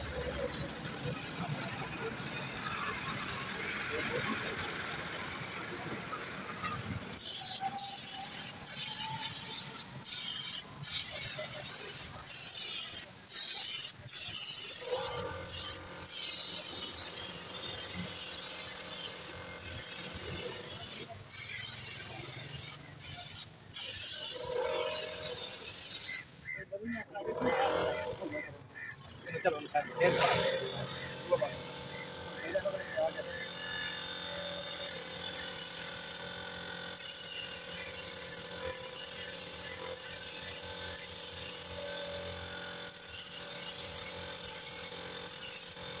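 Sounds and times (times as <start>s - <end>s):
paint spray gun hissing: 7.2s - 26.2s, 34.6s - 46.0s.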